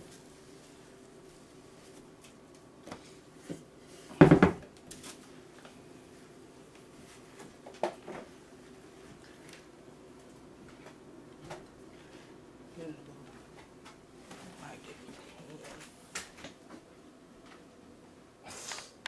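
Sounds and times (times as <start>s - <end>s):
dishes knocking on a counter: 4.2s - 4.6s.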